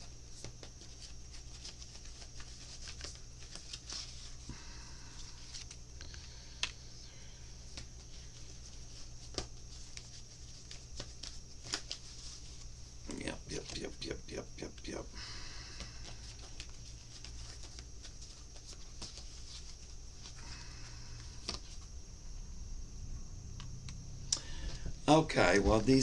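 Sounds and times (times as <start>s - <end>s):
cards rustling: 0.0s - 21.9s
steady low hum: 0.0s - 26.0s
cards tapping and clicking: 8.9s - 12.1s.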